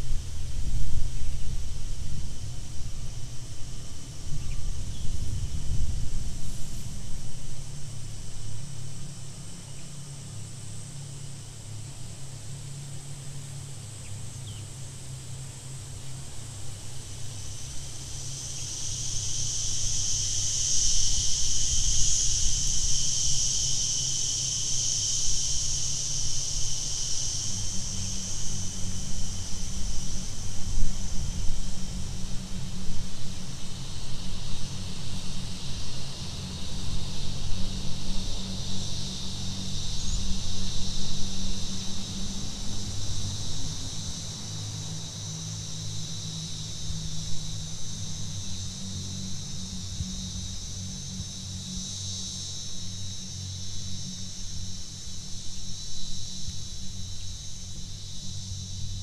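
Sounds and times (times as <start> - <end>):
insects chorus high shrill drone: 0.0 - 59.0.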